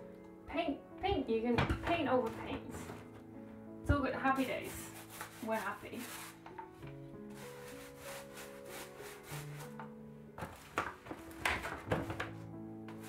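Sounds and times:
background music with held notes: 0.0s - 13.0s
paintbrush scraping in paint tray: 4.2s - 9.8s.

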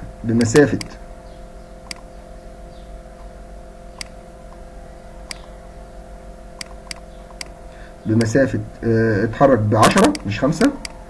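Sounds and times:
low hum: 0.0s - 11.0s
computer mouse clicks: 0.4s - 0.9s, 1.8s - 2.1s, 4.0s - 4.6s, 5.3s - 5.5s, 6.6s - 7.6s, 10.1s - 11.0s.

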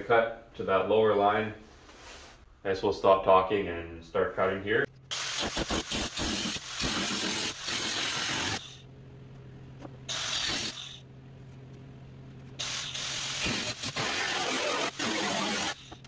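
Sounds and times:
angle grinder cutting sheet steel: 5.1s - 8.8s, 12.6s - 16.0s.

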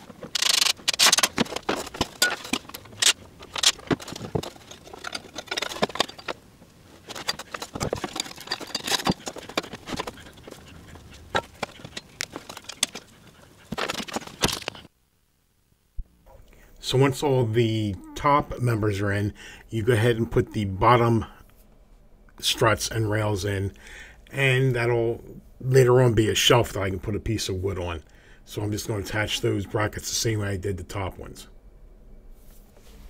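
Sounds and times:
wooden boards and brackets clattering: 0.0s - 14.9s.

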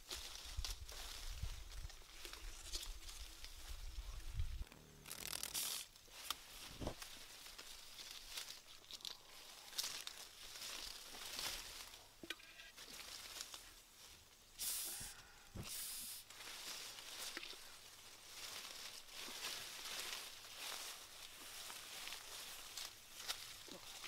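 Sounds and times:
leaves and branches rustling: 0.0s - 24.0s
twigs snapping: 5.0s - 13.6s.

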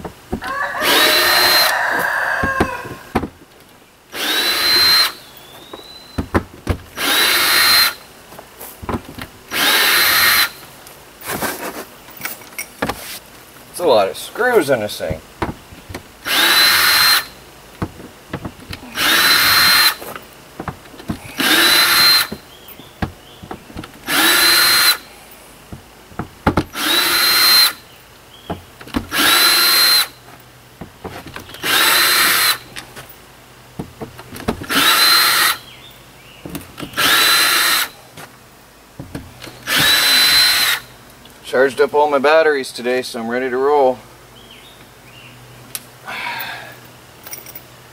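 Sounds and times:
cordless drill motor whining: 0.8s - 3.0s, 4.1s - 5.9s, 7.0s - 8.0s, 9.5s - 10.6s, 16.2s - 17.4s, 18.7s - 20.0s, 21.2s - 22.4s, 24.1s - 25.1s, 26.7s - 27.8s, 29.1s - 30.2s, 31.6s - 32.7s, 34.7s - 35.6s, 36.9s - 38.0s, 39.5s - 40.9s.

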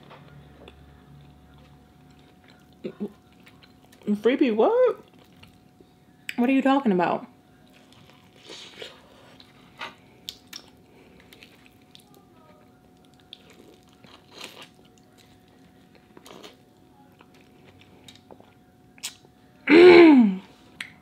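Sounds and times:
faint steady hum: 0.0s - 21.0s
person chewing food: 0.4s - 4.1s, 5.0s - 5.9s, 7.6s - 12.2s, 12.9s - 19.3s.

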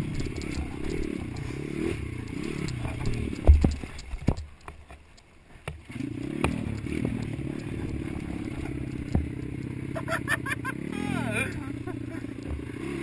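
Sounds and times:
bike knocking and clattering: 0.0s - 10.1s, 12.4s - 12.7s
dirt bike engine: 0.0s - 13.0s.

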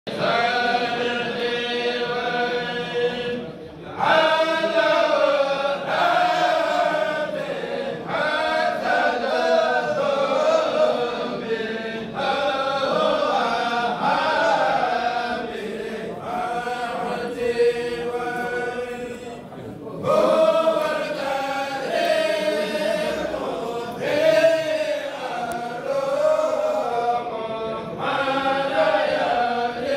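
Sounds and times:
men chanting together: 0.1s - 29.9s.

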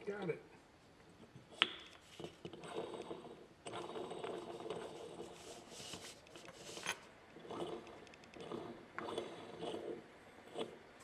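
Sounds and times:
metal parts rubbing and scraping: 4.7s - 7.1s.

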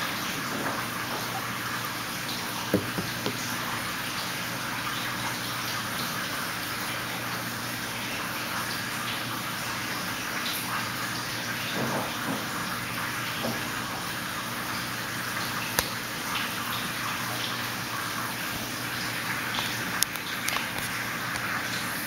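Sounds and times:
running water rushing: 0.0s - 22.0s
light knocks: 2.7s - 3.4s.

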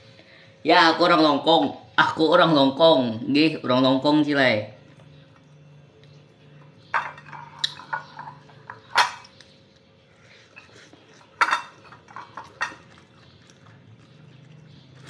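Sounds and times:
ceramic plate clinking: 6.8s - 9.3s, 11.4s - 13.0s.

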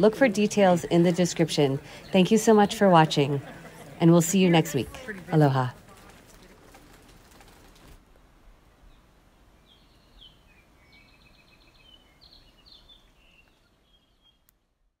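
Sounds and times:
small birds chirping: 8.8s - 14.6s.

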